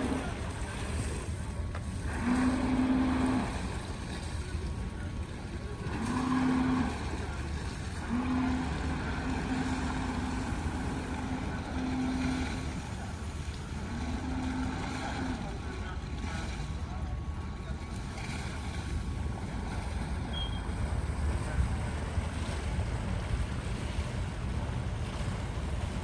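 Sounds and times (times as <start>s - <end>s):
low engine rumble: 0.0s - 26.0s
humming drone: 5.8s - 17.0s.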